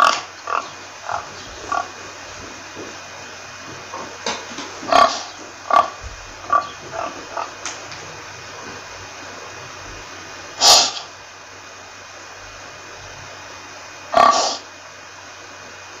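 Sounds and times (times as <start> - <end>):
pig grunting: 0.0 - 3.0, 3.7 - 11.2, 14.1 - 14.7
steady hiss: 0.0 - 16.0.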